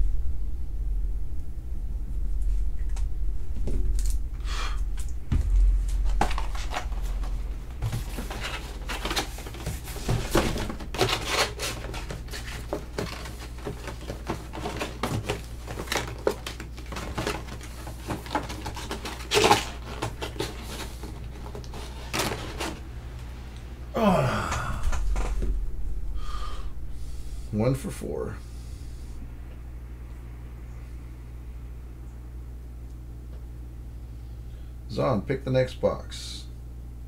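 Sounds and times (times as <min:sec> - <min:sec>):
steady low hum: 0:00.0 - 0:37.0
hands handling card boxes: 0:05.0 - 0:22.8.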